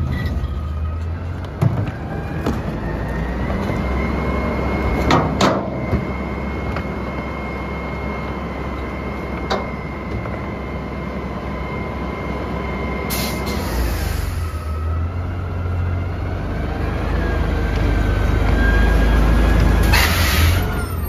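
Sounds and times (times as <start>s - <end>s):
garbage truck idling with whine: 0.0s - 21.0s.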